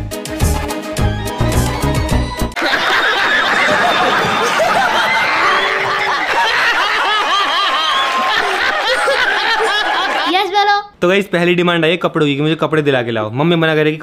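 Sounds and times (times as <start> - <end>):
group of people laughing: 2.6 - 10.4.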